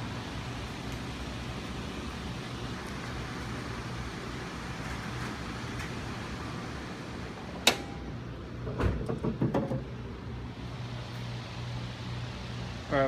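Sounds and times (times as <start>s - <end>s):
steady low hum: 0.0s - 13.0s
hood latch click: 7.6s - 8.0s
hood clunks and knocks: 8.6s - 10.0s.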